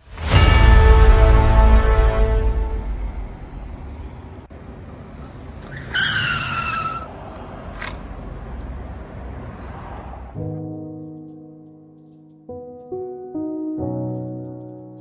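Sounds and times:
music hit: 0:00.0 - 0:03.5
scooter brake squeal: 0:05.6 - 0:07.1.

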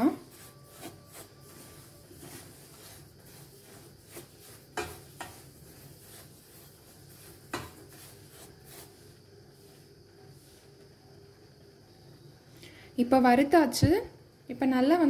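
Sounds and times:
spatula scraping through grains: 0:00.0 - 0:11.0
wood knocking on pan: 0:04.7 - 0:05.4, 0:07.5 - 0:07.8.

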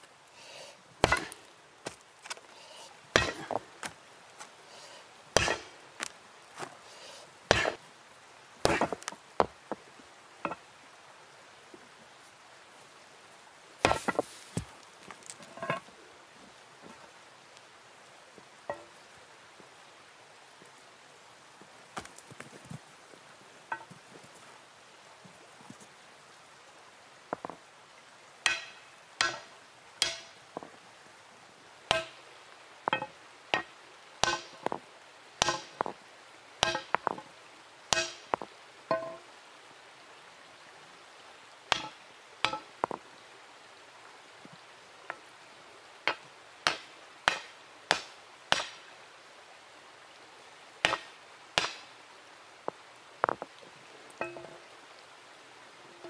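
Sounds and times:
hammer striking hot steel: 0:01.0 - 0:01.4, 0:03.2 - 0:03.6, 0:05.4 - 0:05.7, 0:07.5 - 0:07.8, 0:08.6 - 0:09.5, 0:13.8 - 0:14.2, 0:28.5 - 0:30.4, 0:31.9 - 0:32.2, 0:32.9 - 0:34.8, 0:35.4 - 0:35.9, 0:36.6 - 0:37.1, 0:37.9 - 0:39.2, 0:41.7 - 0:42.7, 0:46.1 - 0:48.8, 0:50.8 - 0:51.8
metallic ring: 0:54.2 - 0:54.6.

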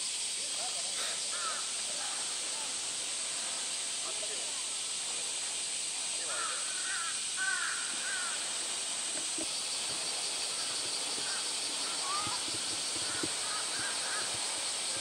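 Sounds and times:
high-pitched hiss of summer ambience: 0:00.0 - 0:15.0
faint short chirping calls: 0:09.4 - 0:15.0.

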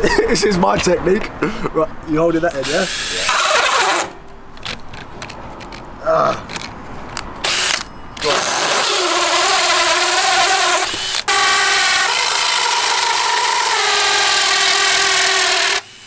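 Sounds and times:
drill motor whine: 0:02.6 - 0:04.1, 0:07.4 - 0:16.0
hole saw cutting wood: 0:02.6 - 0:04.2, 0:07.4 - 0:16.0.

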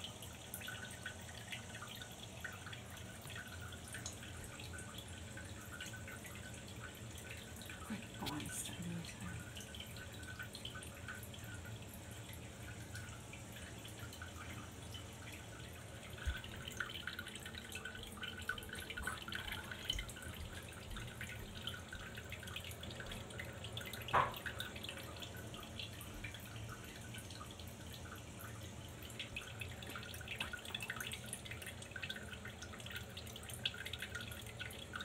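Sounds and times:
urine trickling into toilet water: 0:00.0 - 0:35.0.

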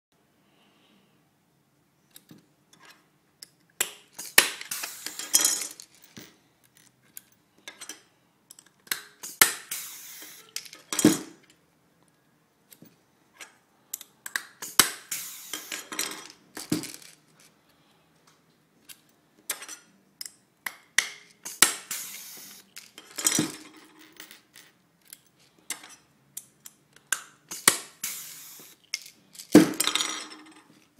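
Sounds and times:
rivet tool hiss and snap: 0:03.8 - 0:05.4, 0:08.8 - 0:10.8, 0:13.4 - 0:15.9, 0:20.7 - 0:22.8, 0:26.4 - 0:29.1.

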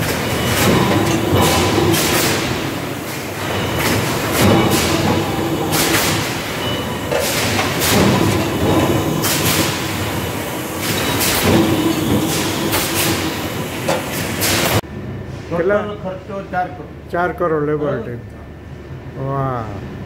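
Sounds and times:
forging machinery clattering: 0:00.0 - 0:14.8.

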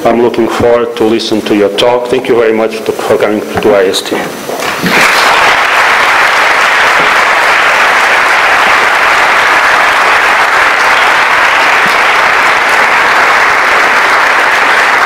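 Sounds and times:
audience applauding: 0:04.6 - 0:15.0.

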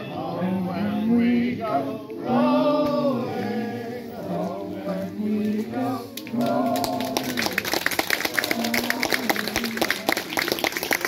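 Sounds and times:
group singing unaccompanied: 0:00.0 - 0:11.0
audience clapping: 0:06.1 - 0:11.0.

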